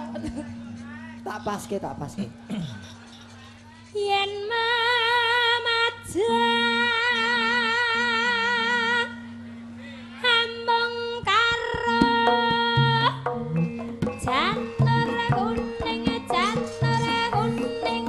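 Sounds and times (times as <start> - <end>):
woman singing with vibrato: 3.9 - 9.4, 10.2 - 13.4, 14.2 - 18.0.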